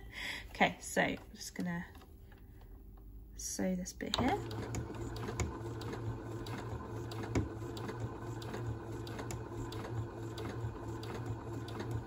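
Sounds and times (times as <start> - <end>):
sewing machine stitching: 4.2 - 12.0.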